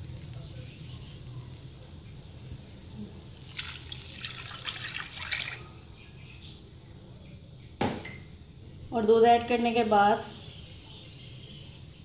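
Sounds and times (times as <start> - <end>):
milk pouring into a hot pan: 0.0 - 5.8.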